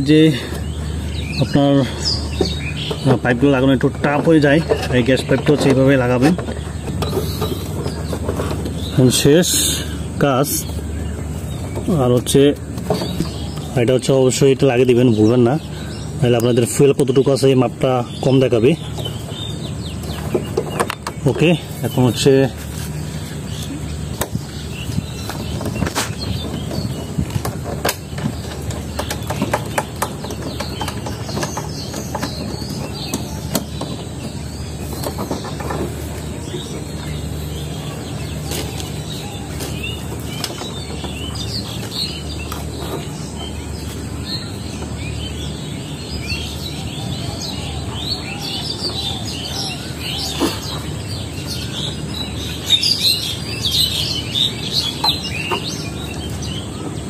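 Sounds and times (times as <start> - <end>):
small birds chirping: 0.0 - 57.0
steady low hum: 0.0 - 57.0
sharp clicks and knocks: 18.9 - 21.4, 25.2 - 37.2.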